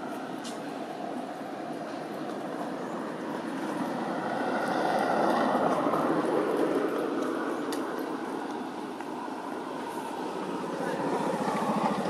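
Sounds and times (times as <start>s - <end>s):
passing vehicle rushing: 2.4s - 12.0s.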